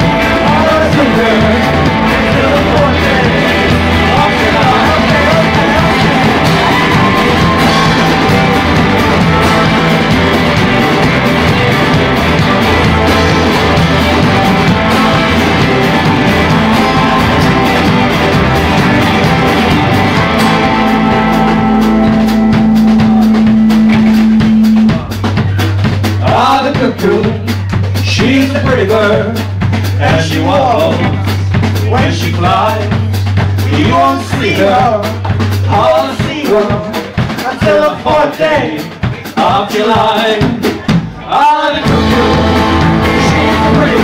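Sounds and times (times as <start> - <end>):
held low notes: 0.0 - 36.0
drum hits: 0.0 - 44.0
live band playing: 0.0 - 44.0.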